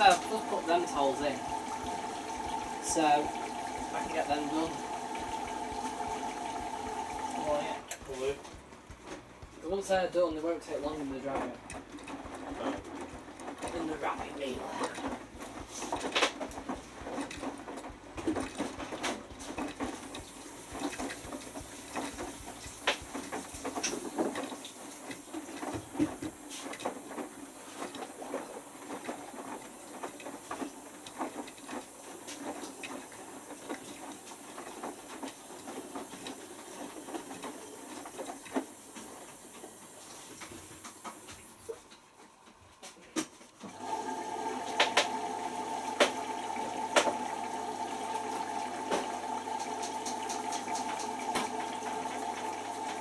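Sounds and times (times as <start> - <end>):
water sloshing: 0.0 - 38.4
washing machine drum tumbling: 0.0 - 41.4, 43.7 - 53.0.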